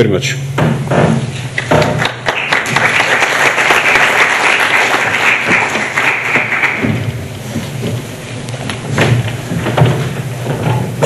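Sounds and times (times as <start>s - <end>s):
audience applauding: 1.6s - 7.1s.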